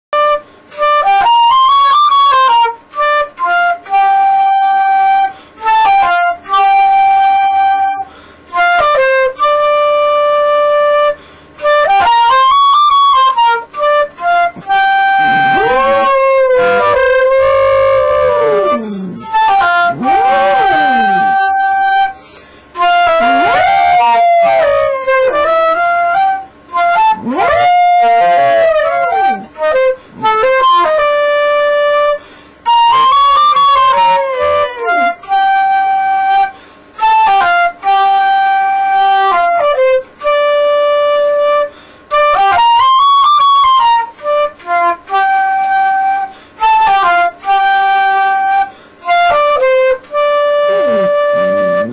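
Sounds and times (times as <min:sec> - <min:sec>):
flute playing slow tune: 0:00.2 - 0:51.9
dog howling: 0:15.1 - 0:21.6, 0:23.1 - 0:26.3, 0:26.9 - 0:31.1, 0:32.8 - 0:35.8, 0:50.6 - 0:51.9.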